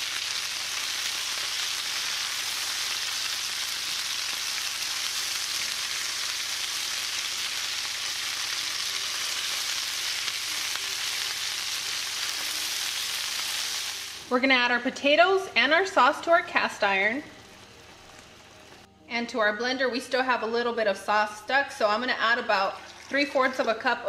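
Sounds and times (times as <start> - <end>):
chicken sizzling in oil: 0.0 - 14.4.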